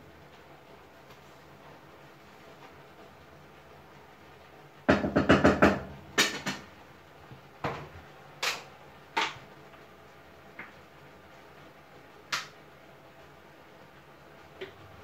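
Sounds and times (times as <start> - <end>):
utensils knocking on cookware: 4.9 - 6.7.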